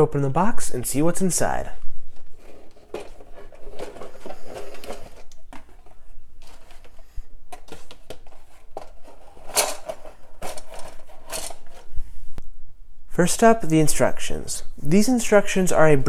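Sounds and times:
plastic parts clattering: 2.2 - 12.0
paper sheet rustling: 2.2 - 12.2.

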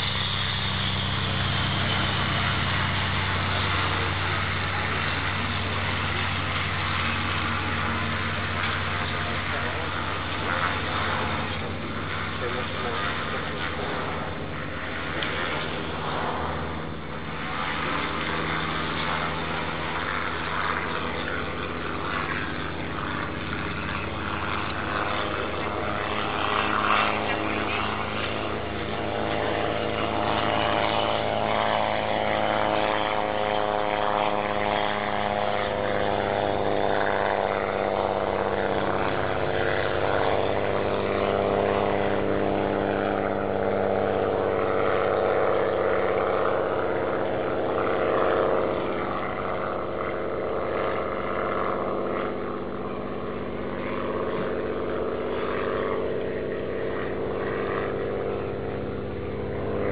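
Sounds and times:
propeller plane flying overhead: 0.0 - 59.9.

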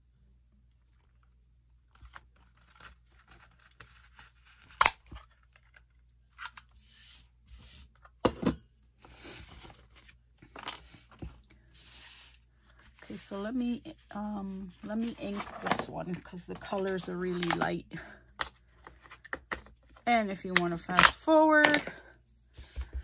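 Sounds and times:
paper rustling and scraping: 9.1 - 13.4.

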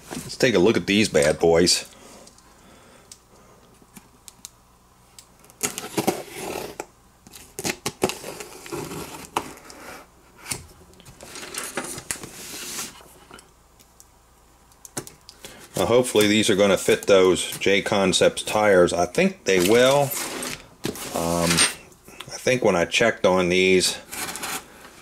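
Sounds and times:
packaging rustling: 19.5 - 21.6.

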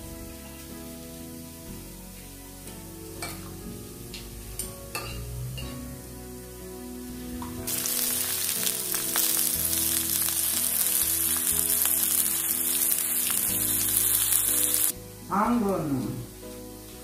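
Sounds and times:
vegetables sizzling in a pan: 7.1 - 17.0.

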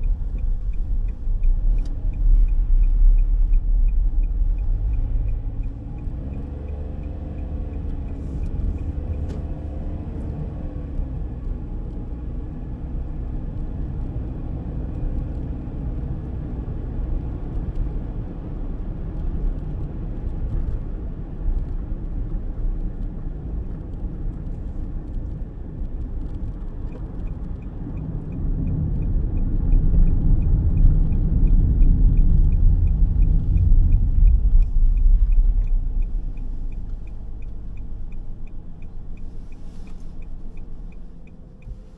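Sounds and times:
light regular ticking: 0.0 - 9.3, 23.7 - 41.9
car tyres and engine rumble: 0.0 - 41.9.

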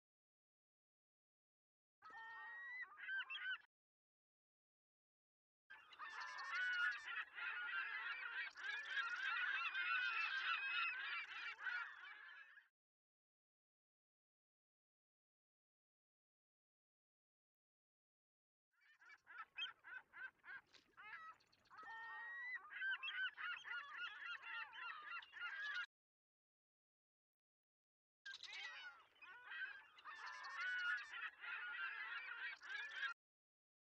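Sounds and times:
flock of birds honking: 5.8 - 12.3, 29.2 - 33.1.

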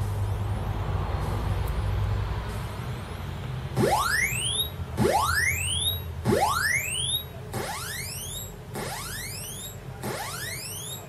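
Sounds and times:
electronic rising pitch sweep: 3.8 - 11.0.

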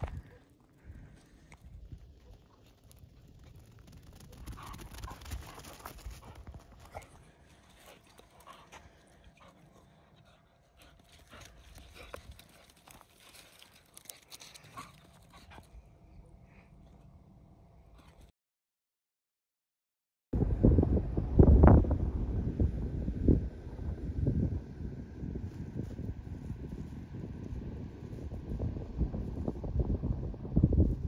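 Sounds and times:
dogs scuffling and panting: 2.0 - 15.7
low steady rumble: 20.4 - 31.0.

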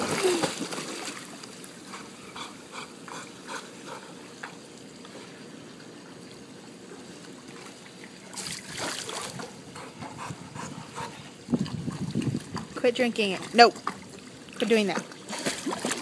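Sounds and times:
dog paddling splashes: 0.0 - 1.7, 11.6 - 16.0
water lapping and trickling: 0.0 - 16.0.

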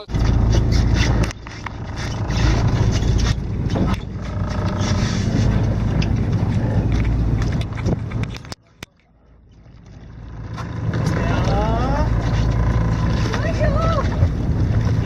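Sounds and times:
wind noise on microphone: 0.0 - 8.6
boat engine droning: 0.0 - 15.0.

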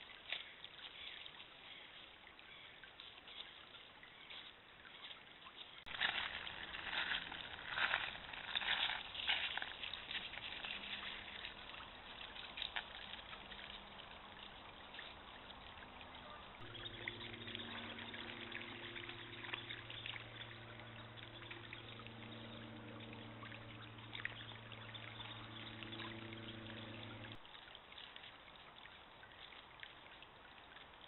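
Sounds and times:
stream trickling over stones: 0.0 - 31.0
low steady hum: 5.9 - 27.7.

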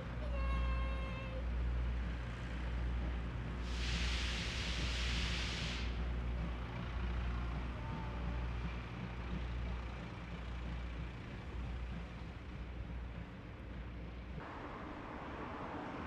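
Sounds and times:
steam train rumbling: 0.0 - 16.0
loud hiss: 3.6 - 6.0.

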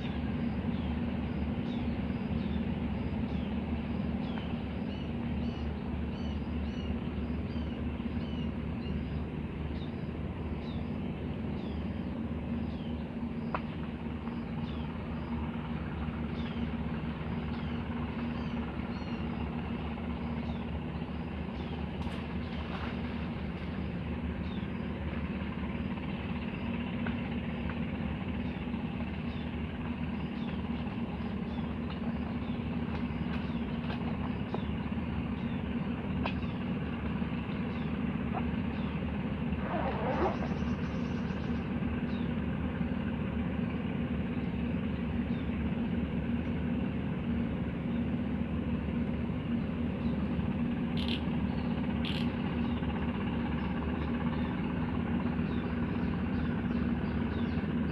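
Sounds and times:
low motor drone: 0.0 - 57.9
bird chirping: 39.6 - 41.6.

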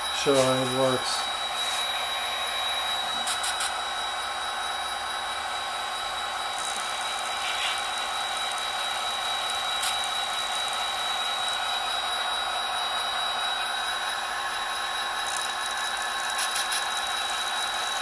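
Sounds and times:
high whine: 0.0 - 4.0
mechanical hum: 0.0 - 18.0.

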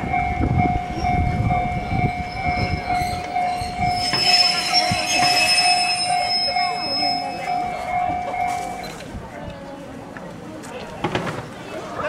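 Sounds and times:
railway warning bell ringing: 0.0 - 9.2
crowd chatter: 0.0 - 12.0.

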